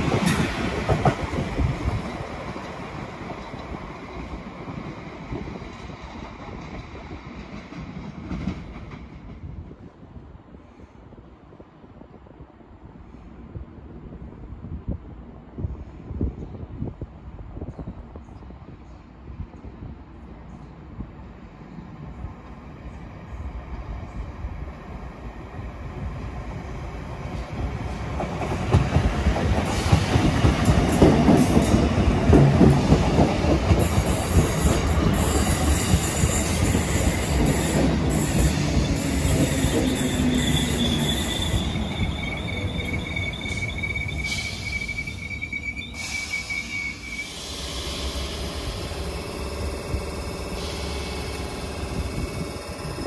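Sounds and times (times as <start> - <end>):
train wheels rumbling on rail: 0.0 - 17.2, 21.0 - 53.0
high-pitched wheel squeal: 37.4 - 48.6.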